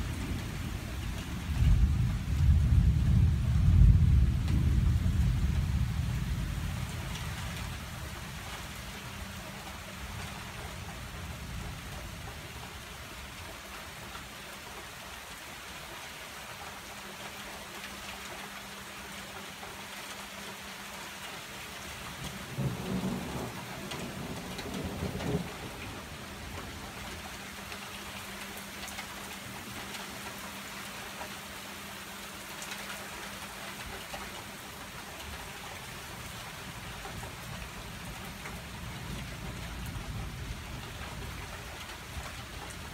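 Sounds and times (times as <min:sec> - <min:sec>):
thunder rumbling: 0:00.0 - 0:08.0, 0:22.2 - 0:27.3
heavy rain: 0:00.0 - 0:42.9.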